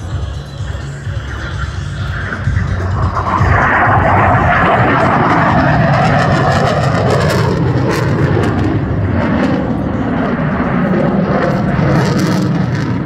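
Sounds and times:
loud rushing jet engine noise: 0.0s - 13.0s.

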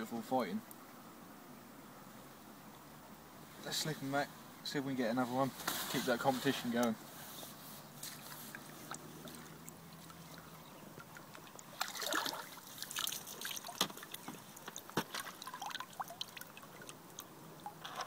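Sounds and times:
water splashing: 8.0s - 18.0s
water dripping from net: 8.5s - 17.8s.

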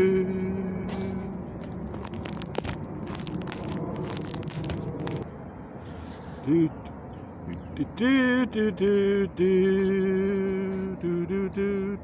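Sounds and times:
person humming: 0.0s - 1.3s
leaves and vines rustling: 0.9s - 5.2s.

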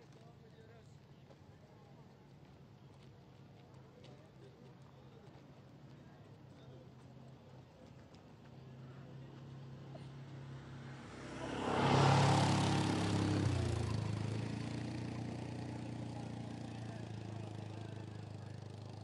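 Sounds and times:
quad bike engine driving past: 8.6s - 19.0s.

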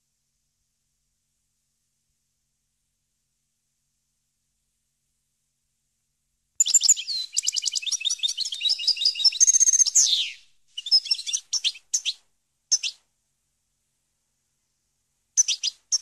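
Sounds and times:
goldfinch twittering song: 6.6s - 13.0s, 15.4s - 16.0s.

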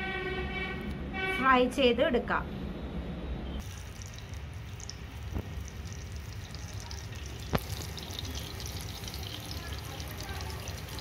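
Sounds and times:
hot oil sizzling in a frying pan: 3.6s - 11.0s.

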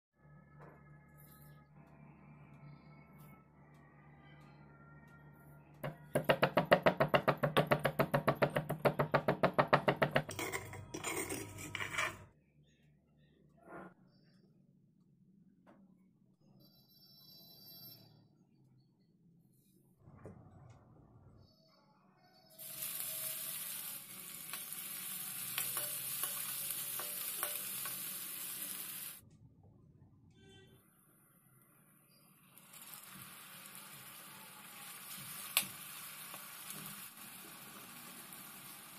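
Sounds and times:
stone pestle pounding seeds: 5.8s - 11.3s
spoon clinking and scraping pan: 10.2s - 12.3s, 25.6s - 28.1s
metal spoon scraping stone: 10.3s - 12.3s
onions sizzling in hot oil: 22.6s - 29.2s, 32.4s - 38.9s.

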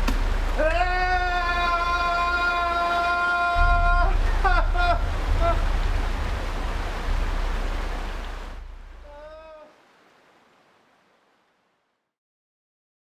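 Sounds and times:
deep rumble: 0.0s - 9.4s.

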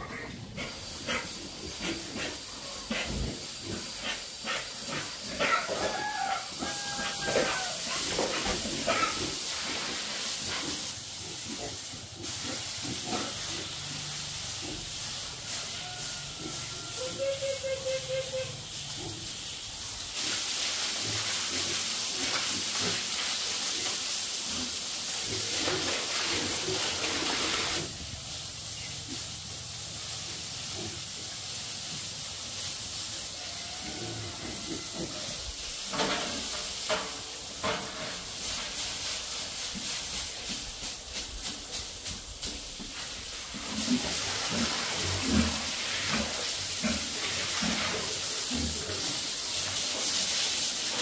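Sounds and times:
pigs squealing and grunting: 0.0s - 9.4s, 15.8s - 19.3s, 33.4s - 35.5s
water spraying from hose: 0.0s - 51.0s.

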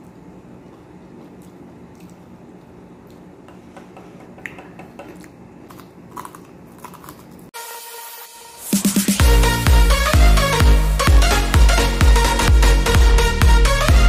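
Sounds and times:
people eating crunchy food: 4.9s - 7.5s.

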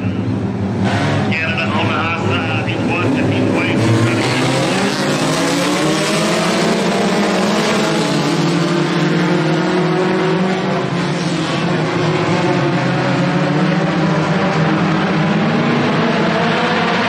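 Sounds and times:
race car engines at speed: 0.0s - 17.0s.

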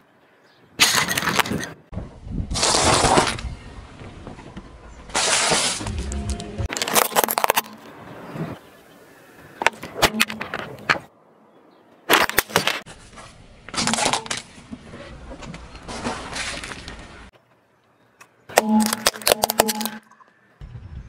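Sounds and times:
tyre crushing plastic: 6.7s - 7.8s, 18.6s - 19.9s.

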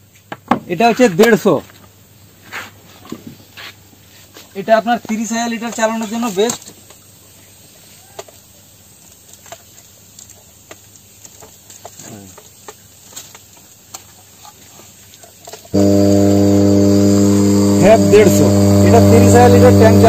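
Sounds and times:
air pump humming: 15.8s - 20.0s.

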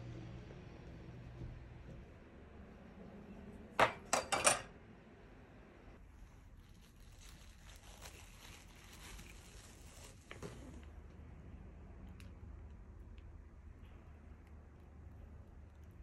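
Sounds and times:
knife clinking against glass bowl: 3.8s - 4.7s
cling film crinkling: 6.0s - 10.8s.

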